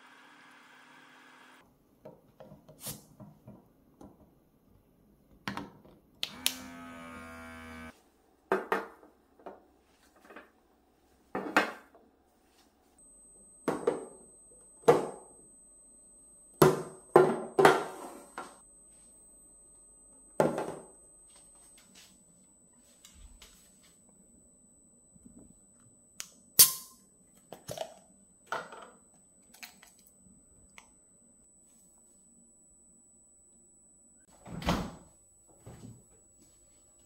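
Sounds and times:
brief steady tone: 13.0 - 34.3.

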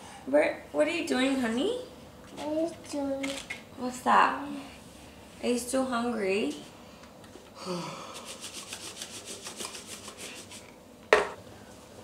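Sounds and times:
rubbing strokes on fabric: 8.2 - 10.7.

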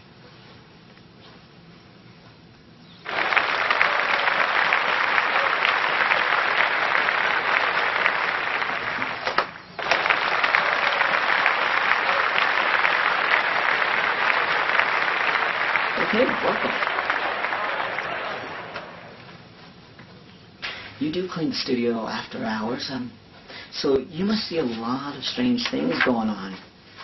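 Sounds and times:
crowd applauding: 3.0 - 19.4.

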